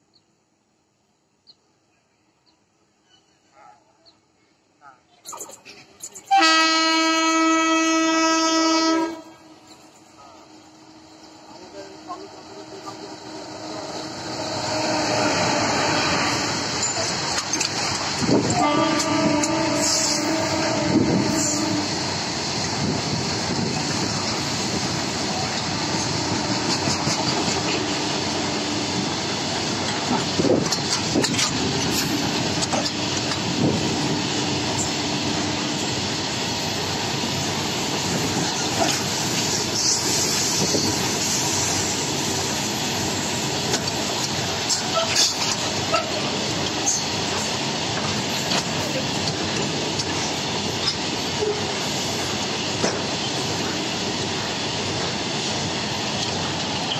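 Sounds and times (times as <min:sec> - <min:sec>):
freight train passing: 0:03.0 - 0:56.9
wheels clacking over rail joints: 0:11.7 - 0:21.7, 0:22.5 - 0:35.6, 0:43.4 - 0:56.9.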